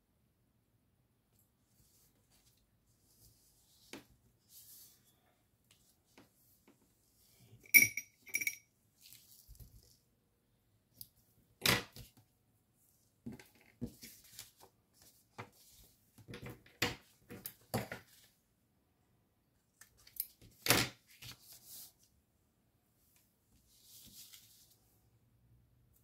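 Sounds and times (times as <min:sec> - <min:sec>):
ringing metallic clinks: 0:07.7 - 0:08.6.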